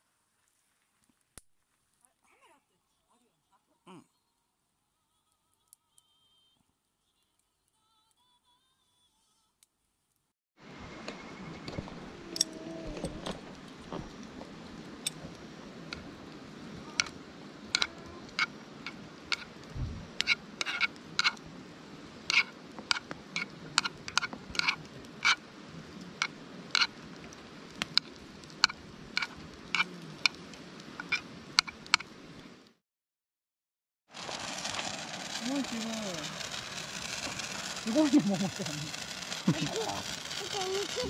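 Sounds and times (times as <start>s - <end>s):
steady hiss of frying: 10.6s - 32.8s, 34.1s - 41.0s.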